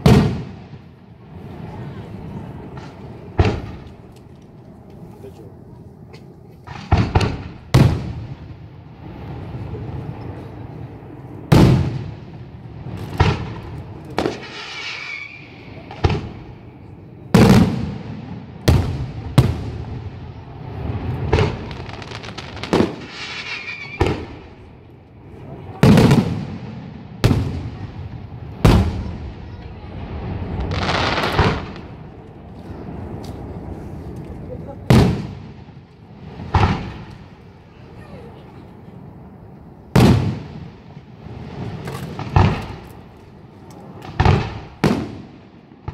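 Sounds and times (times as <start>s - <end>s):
firework shells booming: 0.0s - 1.0s, 2.6s - 4.2s, 6.6s - 8.6s, 11.4s - 16.6s, 17.3s - 24.8s, 25.7s - 29.6s, 30.2s - 33.6s, 34.8s - 37.6s, 39.2s - 45.9s
firework stars crackling: 0.0s - 45.9s.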